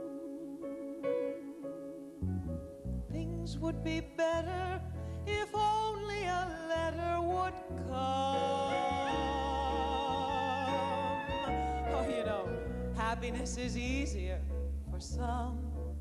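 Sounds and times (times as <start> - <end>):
band with piano: 0.0 - 16.0
woman singing: 5.3 - 14.4.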